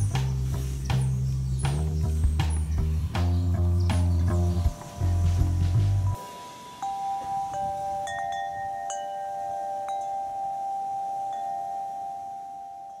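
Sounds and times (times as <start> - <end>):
chimes ringing: 4.6 - 13.0.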